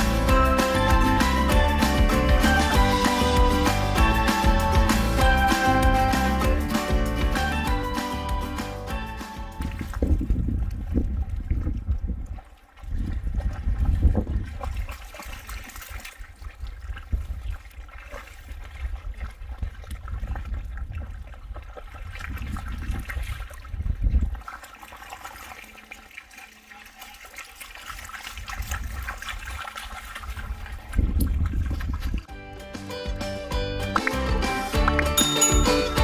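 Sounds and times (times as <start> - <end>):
dogs splashing through water: 9.4 - 32.3
water dripping: 14.5 - 32.3.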